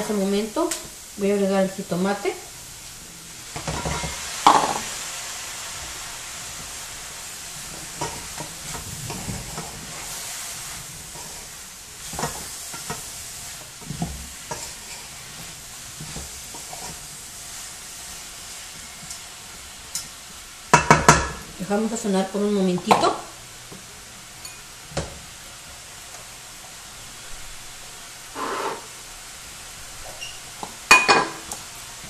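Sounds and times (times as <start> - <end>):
food sizzling in pan: 0.0 - 32.0
food knocking into pan: 3.6 - 4.9, 20.7 - 21.4.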